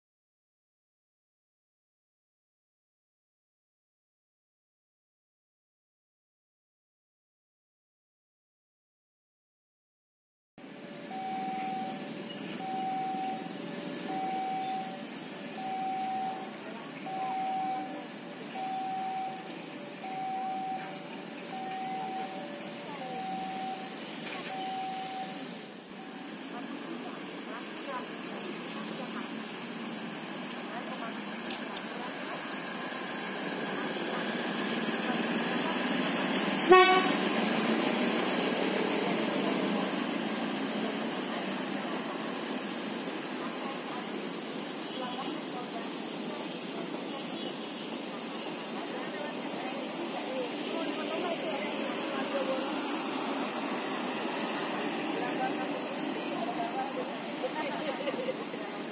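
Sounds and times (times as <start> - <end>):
street traffic noise: 10.6 - 58.9
train rumbling past: 10.6 - 58.9
level crossing alarm two-note signal: 11.0 - 26.2, 32.8 - 40.4
train horn toot: 36.6 - 37.4.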